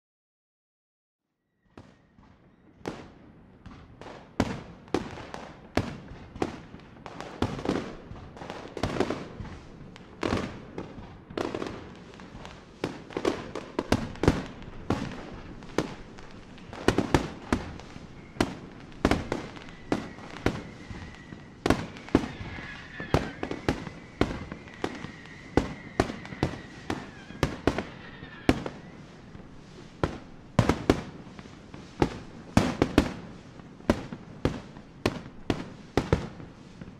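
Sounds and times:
rumble of smaller firework bursts: 1.8s - 36.9s
firework shells bursting: 10.2s - 33.2s.

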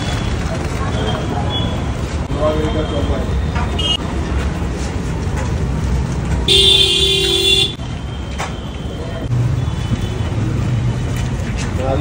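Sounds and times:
street traffic rumble: 0.0s - 12.0s
vehicle horn: 6.5s - 7.8s.

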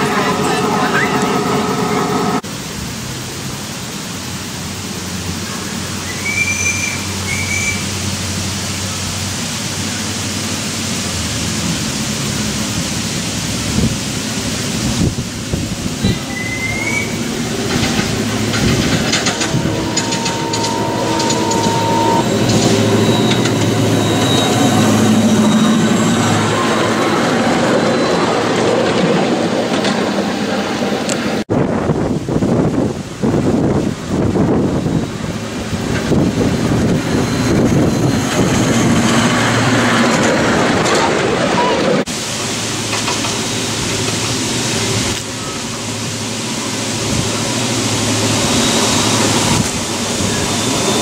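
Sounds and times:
track clicks and rattles: 17.4s - 24.6s.

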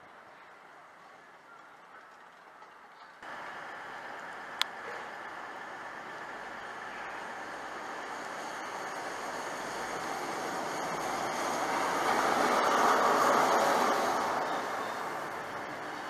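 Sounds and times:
train passing close: 3.2s - 16.0s.

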